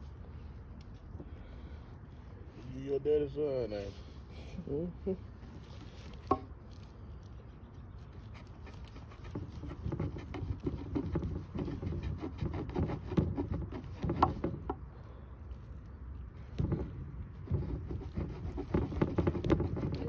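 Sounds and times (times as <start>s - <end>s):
knife sawing through bone: 8.3s - 14.5s, 17.5s - 20.0s.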